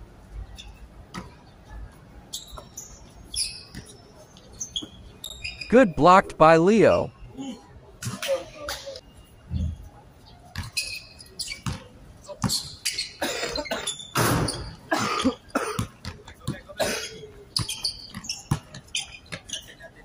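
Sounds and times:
players' voices: 5.7s - 7.6s
basketball bouncing on court: 11.6s - 11.8s, 17.6s - 18.8s.

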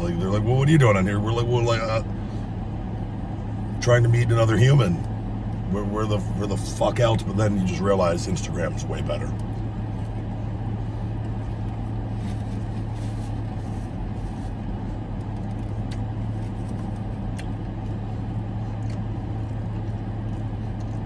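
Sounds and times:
car engine idling: 0.0s - 21.0s
faint chewing clicks: 14.9s - 21.0s.

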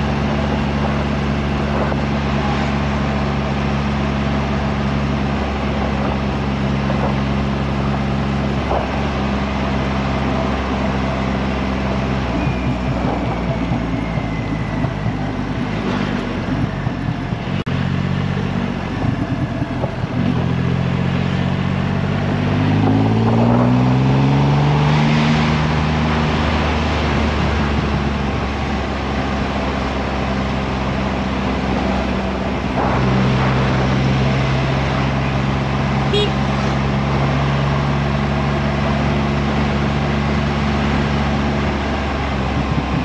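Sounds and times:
wind on microphone: 0.0s - 3.4s, 4.6s - 9.6s, 12.2s - 17.6s, 31.1s - 35.8s, 41.3s - 43.0s
motorcycle engine cruising: 0.0s - 43.0s.

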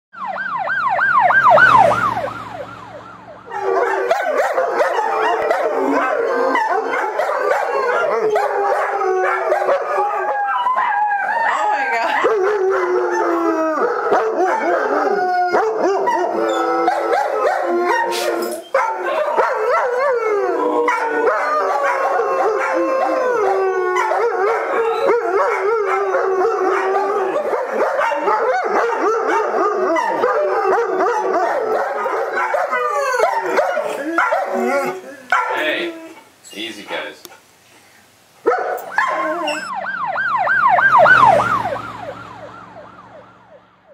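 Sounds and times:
dogs howling: 3.4s - 37.1s, 38.4s - 42.4s.

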